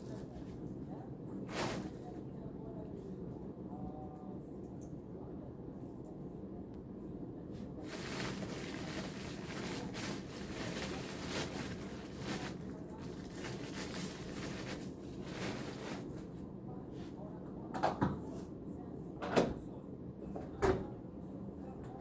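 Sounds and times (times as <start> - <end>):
steady low hum: 0.0 - 22.0
plastic bag rustling: 1.5 - 2.0, 7.8 - 16.3.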